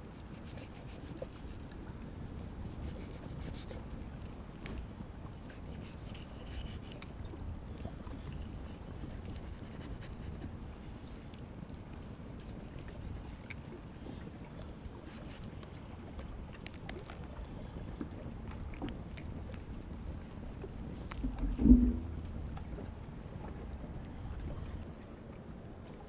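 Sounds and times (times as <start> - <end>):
knife scraping through skin: 0.1 - 1.6, 2.4 - 3.8, 5.5 - 7.2, 8.4 - 10.4, 12.2 - 13.6
wind rumble on microphone: 15.8 - 26.0.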